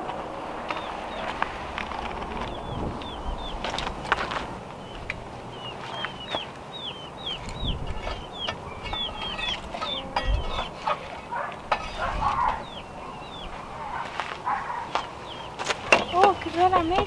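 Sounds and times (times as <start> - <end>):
bird peeping calls: 0.6 - 17.0
wooden pole scraping embers: 7.4 - 12.8.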